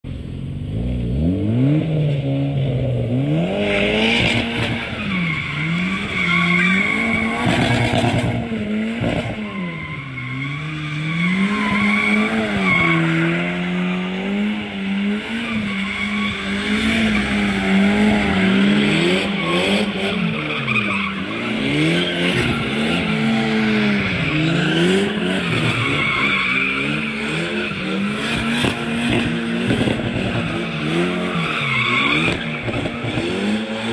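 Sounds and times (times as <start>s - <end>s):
car engines revving hard: 0.4s - 33.9s
tyres squealing on tarmac: 4.8s - 8.3s, 9.1s - 13.8s, 15.0s - 29.0s, 30.2s - 33.2s.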